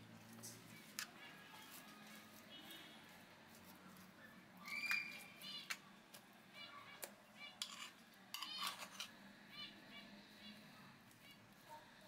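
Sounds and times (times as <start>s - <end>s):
spoon scraping with squeaks: 6.8s - 9.7s.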